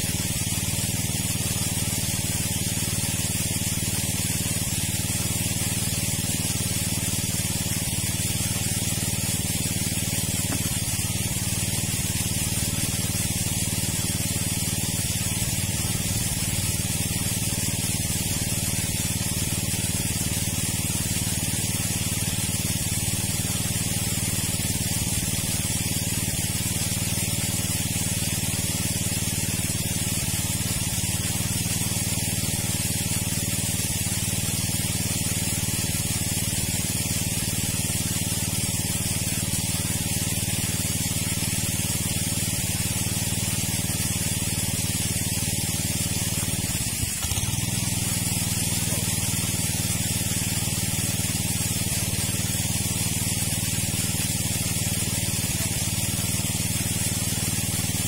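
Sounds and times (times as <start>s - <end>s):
water gushing from outlet: 0.0s - 58.0s
water pump motor humming: 0.0s - 58.0s.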